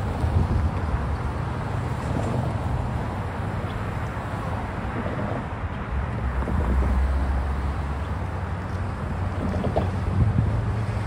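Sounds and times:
cars driving past: 0.0 - 11.0
low traffic rumble: 0.0 - 11.0.

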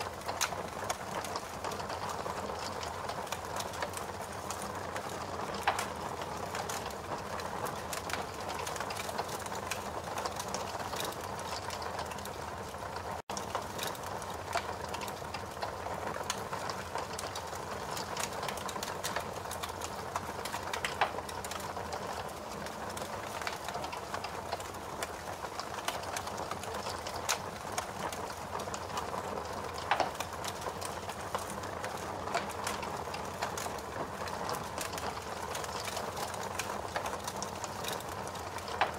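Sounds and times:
fire crackling: 0.0 - 38.9
fire popping: 0.0 - 38.9.

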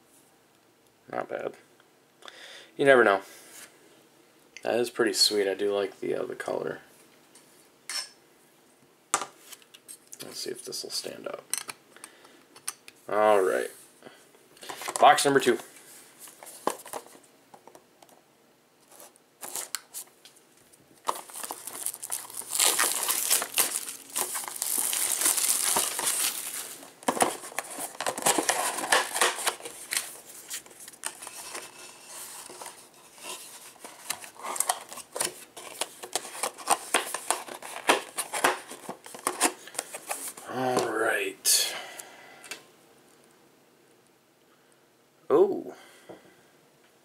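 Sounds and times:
plastic wrap tearing and crinkling: 18.9 - 20.1, 21.0 - 40.4
box rustling and clicks: 21.1 - 40.4.

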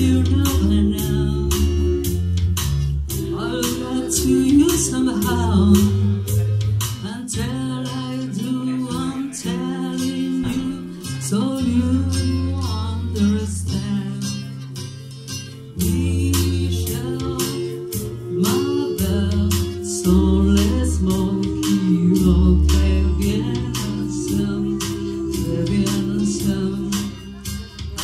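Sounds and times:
women singing into microphones: 0.0 - 2.2, 3.1 - 6.4, 7.0 - 14.5, 15.8 - 27.8
acoustic guitar strumming: 9.2 - 28.0.

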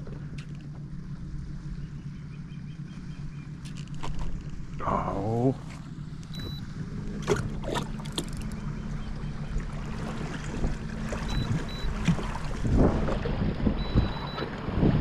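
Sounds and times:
steady low hum: 0.0 - 15.0
water splashing along kayak hull: 5.6 - 15.0.

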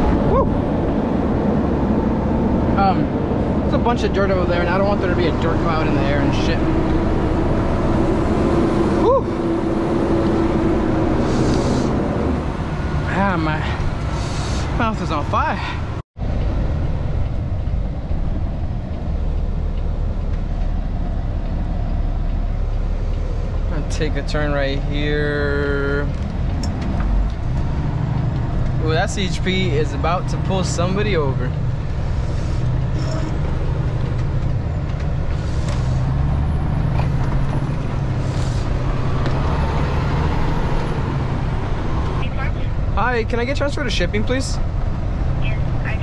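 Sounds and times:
road noise: 0.0 - 46.0
truck diesel engine rumble: 0.0 - 46.0.

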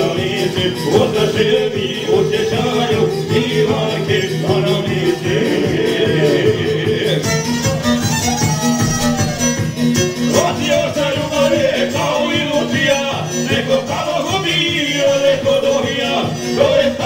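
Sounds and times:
men singing into microphones: 0.0 - 7.7, 10.2 - 17.0
keyboard with steady beat: 0.0 - 17.0
violin leading: 0.0 - 17.0
plucked lute: 2.3 - 14.0.

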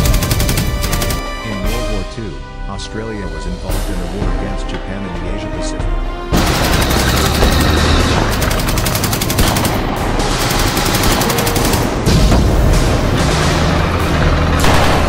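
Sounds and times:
rapid machine-gun fire: 0.0 - 1.3, 6.3 - 15.0
heavy blast: 6.4 - 15.0.

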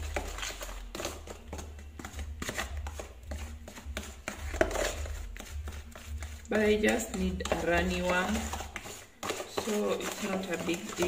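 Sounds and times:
spoon scraping plastic bowl: 0.0 - 11.0.

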